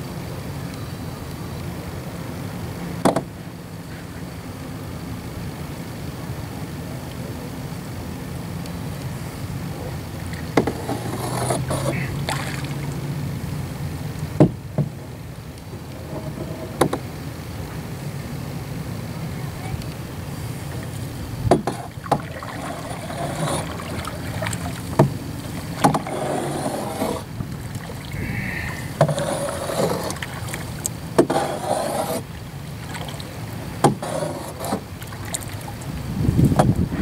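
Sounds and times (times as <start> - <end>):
paddle splashing through water: 9.3 - 15.2, 20.0 - 37.0
sharp knocks: 21.5 - 22.3.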